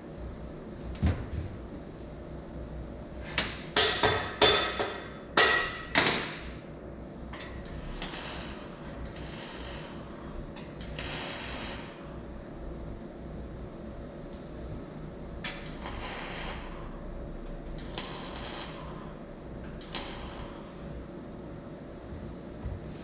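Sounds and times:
short hissing bursts: 7.8 - 10.2, 10.8 - 12.2, 15.7 - 16.9, 17.8 - 19.1, 19.8 - 20.8.

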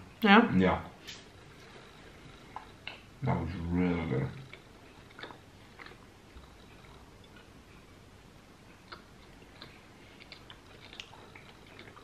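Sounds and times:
chewing with wet mouth sounds: 1.6 - 3.1, 4.3 - 7.9, 8.6 - 12.0
small mouth clicks: 8.8 - 12.0.

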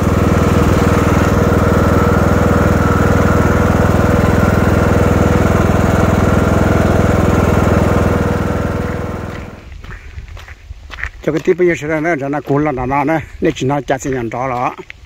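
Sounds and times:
lawn mower engine running: 0.0 - 9.7.

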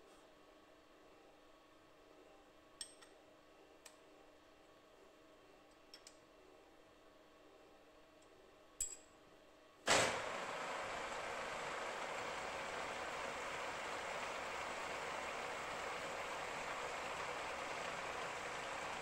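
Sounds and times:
light metallic clicks and clinks: 8.8 - 9.2.

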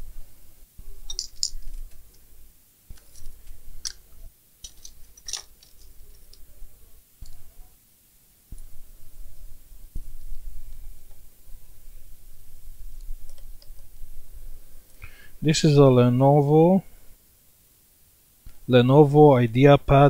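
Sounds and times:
hand tools clicking and clinking: 1.1 - 1.9, 4.6 - 6.4.

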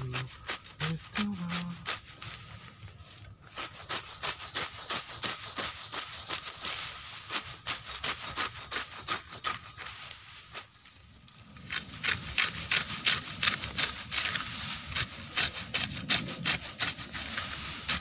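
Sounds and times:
grass rustling: 0.0 - 18.0
sickle slicing grass: 0.0 - 18.0.

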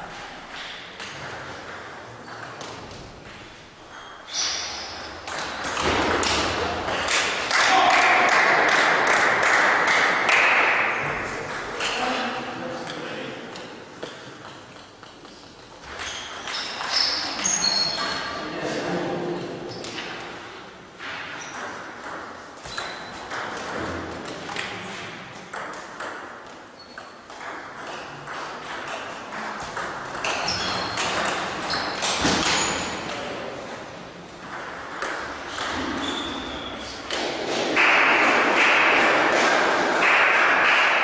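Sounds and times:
table tennis balls clicking: 0.9 - 4.2, 12.8 - 18.2, 21.5 - 33.5, 34.3 - 36.1.

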